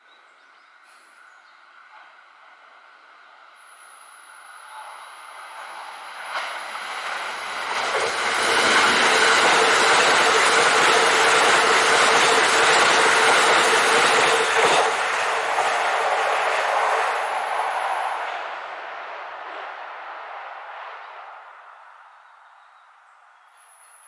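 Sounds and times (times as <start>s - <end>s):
train passing at speed: 0.8s - 22.4s.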